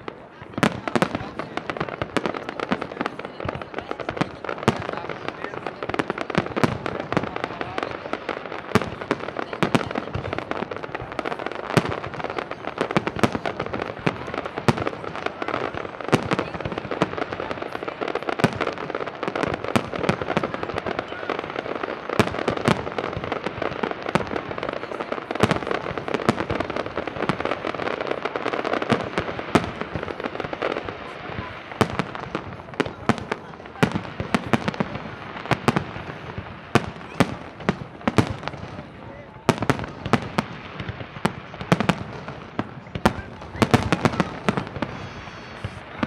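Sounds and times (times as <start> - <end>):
fireworks bursting: 0.0 - 46.0.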